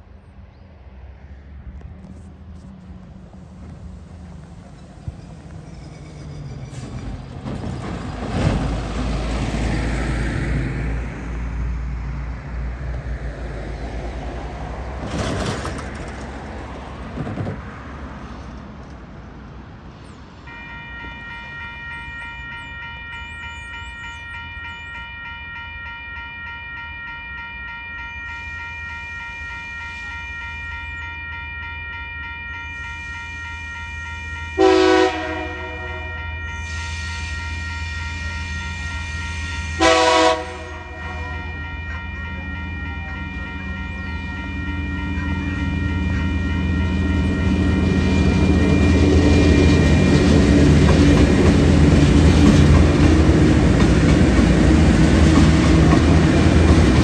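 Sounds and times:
diesel locomotive engine rumble: 0.0 - 57.0
train wagons rolling with whine: 1.1 - 22.7, 36.6 - 57.0
train horn blast: 20.5 - 24.8, 28.3 - 51.6.

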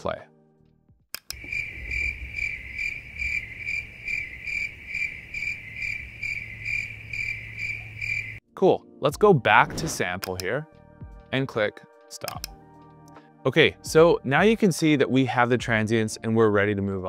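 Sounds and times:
cricket chirping: 1.3 - 8.4.

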